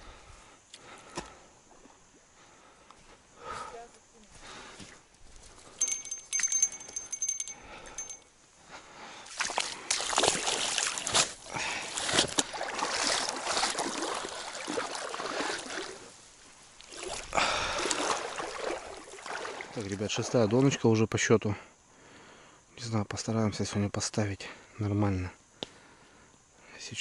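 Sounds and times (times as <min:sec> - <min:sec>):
thin high tone: 0:05.8 - 0:08.3
boots wading through water: 0:09.2 - 0:20.7.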